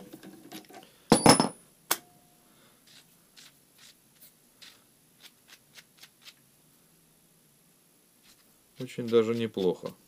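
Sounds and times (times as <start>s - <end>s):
nut ticking and scraping on thread: 8.2s - 10.0s.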